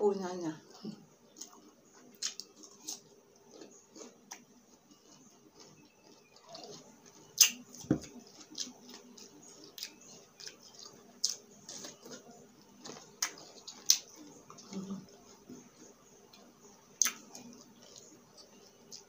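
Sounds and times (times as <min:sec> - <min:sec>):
crunching cucumber bites: 0:01.4 - 0:14.2.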